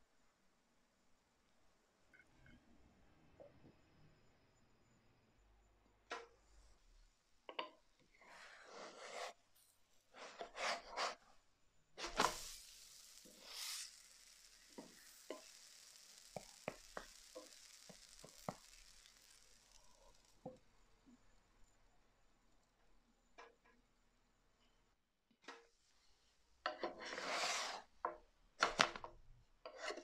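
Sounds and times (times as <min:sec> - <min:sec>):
dough sizzling in pan: 0:07.5 - 0:21.4, 0:26.7 - 0:30.0
spatula scraping frying pan: 0:10.1 - 0:11.2, 0:12.0 - 0:20.3, 0:26.7 - 0:27.9, 0:29.6 - 0:30.0
pancake flipped with thump: 0:12.0 - 0:12.6
small ticks: 0:12.6 - 0:20.7.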